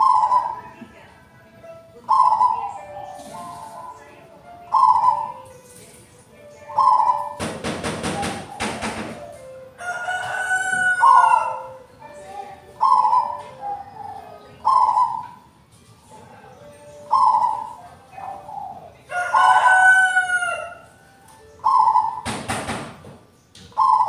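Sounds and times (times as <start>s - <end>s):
dove cooing: 0.0s - 1.1s, 1.8s - 23.0s, 23.6s - 24.0s
rooster crowing: 9.8s - 11.7s, 19.1s - 20.9s.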